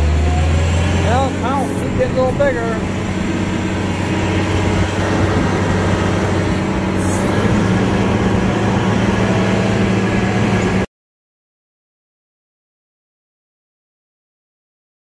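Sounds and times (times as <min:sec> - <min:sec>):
diesel engine low drone: 0:00.0 - 0:10.9
rattling noise: 0:00.9 - 0:10.8.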